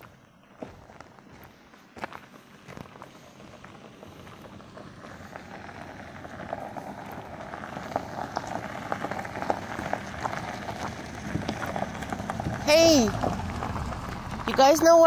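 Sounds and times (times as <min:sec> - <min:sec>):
footsteps crunching on trail: 0:00.0 - 0:14.6.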